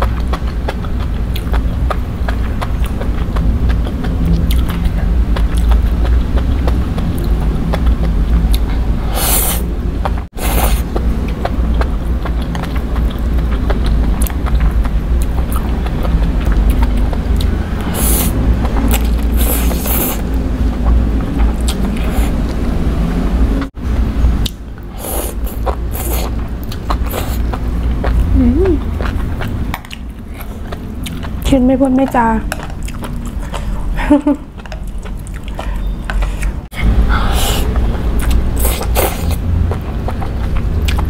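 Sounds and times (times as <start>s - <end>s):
wet chewing: 0.0s - 23.8s, 24.4s - 41.0s
low rumble: 0.0s - 38.7s
noodle slurping: 8.6s - 9.7s, 10.3s - 11.0s, 15.8s - 21.0s, 21.6s - 22.6s, 24.9s - 28.2s, 35.4s - 41.0s.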